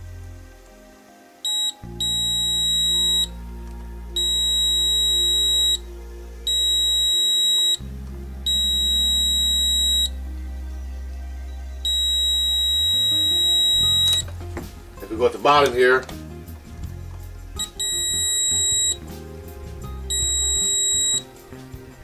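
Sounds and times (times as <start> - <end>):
multimeter high-pitched beeps: 1.4 - 3.4, 4.1 - 5.8, 6.4 - 10.2, 11.8 - 14.3, 17.6 - 19.1, 20.1 - 21.3
multimeter chirp: 1.4 - 10.6, 11.5 - 21.5.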